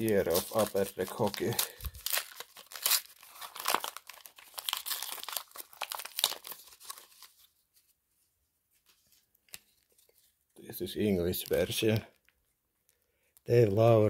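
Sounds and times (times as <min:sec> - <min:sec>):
wrapper tearing and crinkling: 0:00.0 - 0:07.5.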